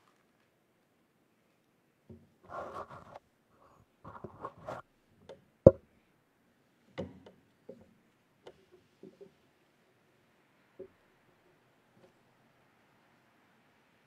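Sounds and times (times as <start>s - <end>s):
rustling: 2.4s - 4.8s.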